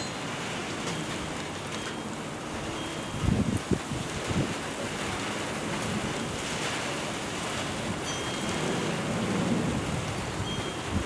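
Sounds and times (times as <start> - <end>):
steady rain: 0.0 - 11.0
low rumble of thunder: 3.2 - 11.0.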